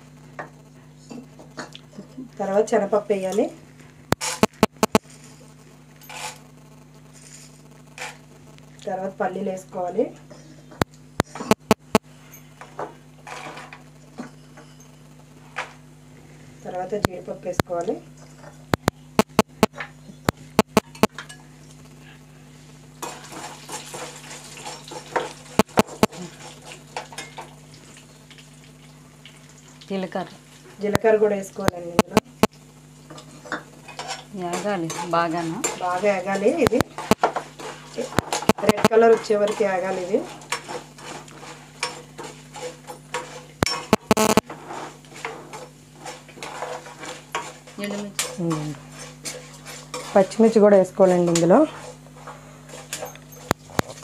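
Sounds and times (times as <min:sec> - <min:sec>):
steady low hum: 0:00.0 - 0:54.0
spatula scraping pan: 0:07.1 - 0:08.3, 0:11.3 - 0:15.6, 0:23.0 - 0:27.7, 0:33.1 - 0:54.0
food sizzling in oil: 0:22.6 - 0:54.0.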